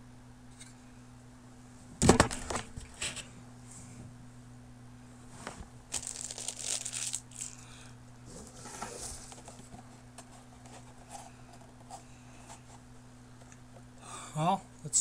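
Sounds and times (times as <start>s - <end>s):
packaging crinkling: 5.9s - 7.6s.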